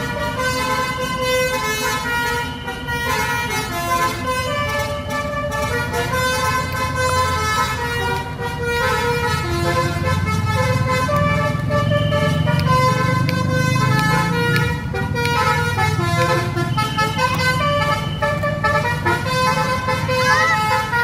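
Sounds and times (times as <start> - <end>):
musical horn playing melody: 0.0 - 21.0
bus engine running: 2.1 - 21.0.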